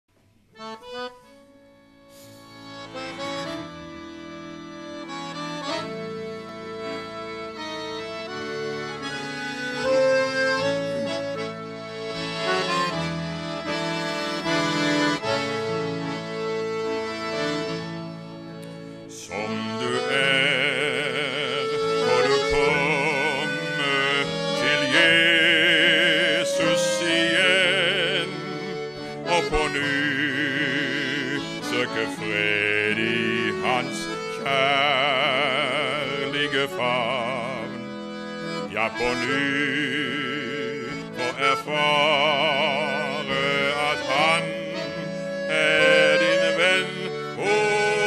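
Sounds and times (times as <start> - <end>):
accordion playing: 0.4 - 48.0
man singing with vibrato: 19.1 - 48.0.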